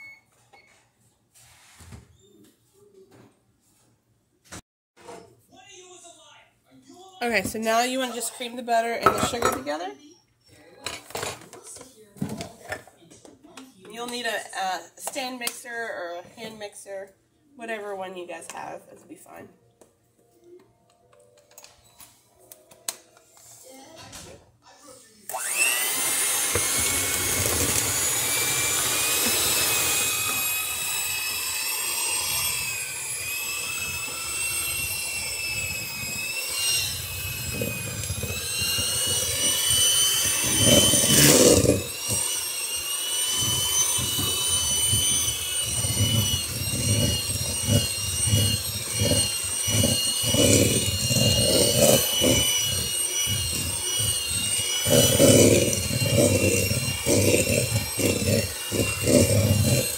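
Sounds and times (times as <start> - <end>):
hand mixer motor whine: 7.2 - 9.8, 25.3 - 59.9
beaters knocking in mixture: 9.0 - 9.8, 25.5 - 59.9.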